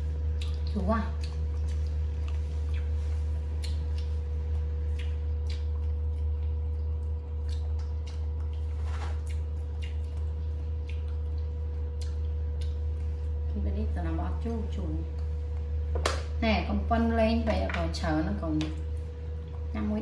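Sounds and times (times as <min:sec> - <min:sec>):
steady low hum: 0:00.0 - 0:20.0
monkey chewing: 0:00.1 - 0:13.3.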